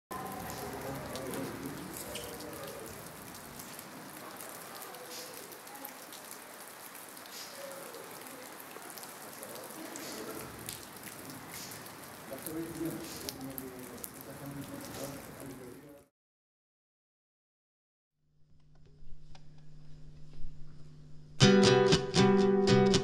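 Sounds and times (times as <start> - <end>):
rain on concrete and puddle: 0.1 - 16.1.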